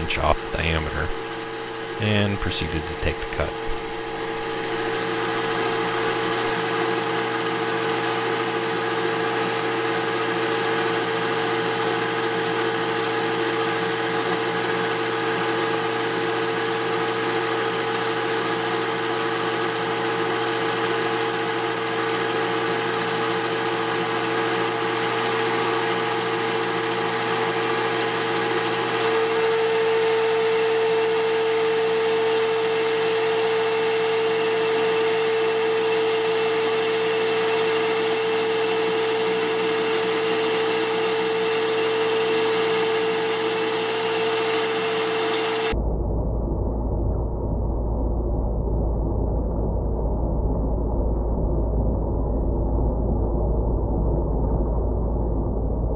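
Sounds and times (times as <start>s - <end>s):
lathe tool cutting metal: 0.0s - 45.8s
metal lathe motor whine: 0.0s - 45.8s.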